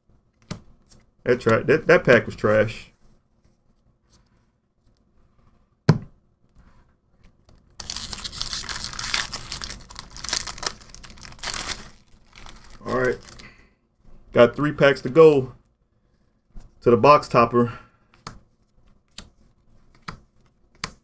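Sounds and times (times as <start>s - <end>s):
foil wrapper tearing and crinkling: 7.8s - 13.5s.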